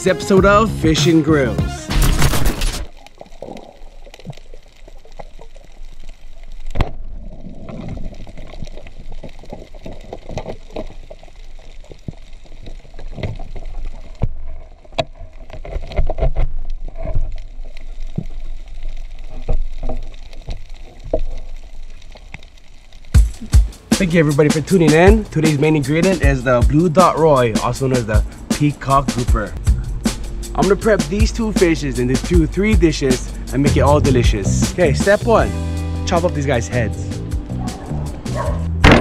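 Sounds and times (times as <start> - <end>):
muffled underwater water wash: 2.9 - 24.0.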